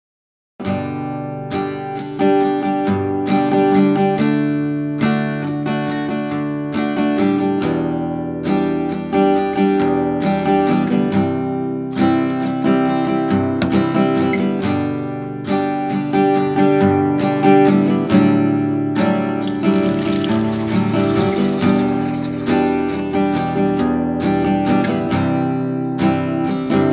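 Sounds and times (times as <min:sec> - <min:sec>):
acoustic guitar strumming chords: 0:00.6 - 0:26.9.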